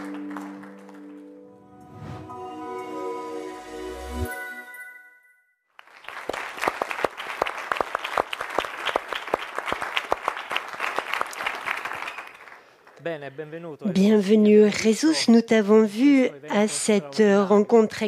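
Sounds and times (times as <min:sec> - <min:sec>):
audience clapping: 0:00.0 - 0:01.6, 0:05.8 - 0:13.5
music jingle: 0:00.0 - 0:05.6.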